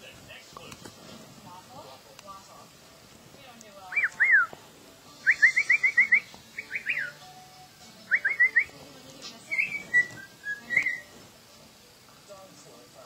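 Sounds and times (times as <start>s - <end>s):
cockatiel whistling: 3.9s - 4.5s, 5.2s - 7.3s, 8.1s - 8.8s, 9.5s - 11.2s.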